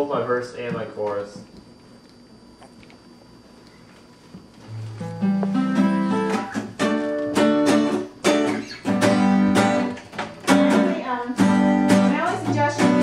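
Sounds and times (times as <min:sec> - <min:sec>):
acoustic guitar strumming: 0:04.6 - 0:13.0.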